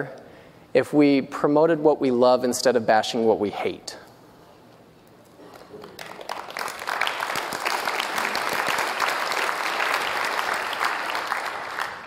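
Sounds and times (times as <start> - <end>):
audience clapping: 5.4 - 12.0.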